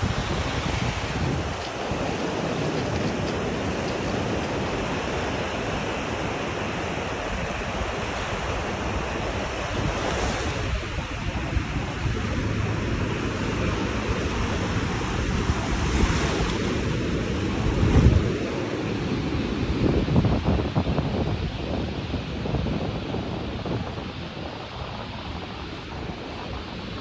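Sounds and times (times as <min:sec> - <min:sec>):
surf hissing on sandy beach: 0:00.0 - 0:27.0
wind rumbling on microphone: 0:00.0 - 0:27.0.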